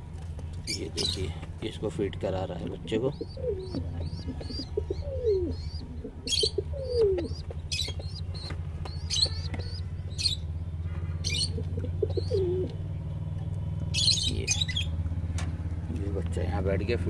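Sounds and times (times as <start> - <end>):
steady low hum: 0.0 - 17.0
birds chirping: 0.3 - 17.0
pigeon cooing: 2.2 - 10.4, 11.2 - 12.8.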